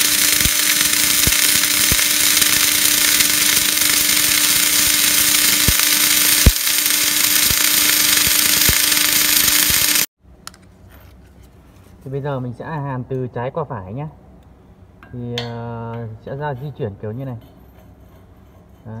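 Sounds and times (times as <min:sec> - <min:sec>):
faint hum: 0:00.0 - 0:10.1
welding arc crackling: 0:00.0 - 0:10.1
welding pops: 0:00.0 - 0:10.1.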